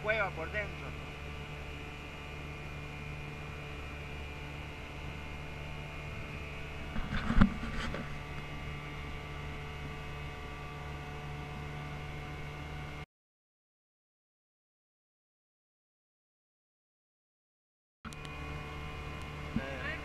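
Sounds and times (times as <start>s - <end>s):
boat engine drone: 0.0s - 13.1s, 18.1s - 20.0s.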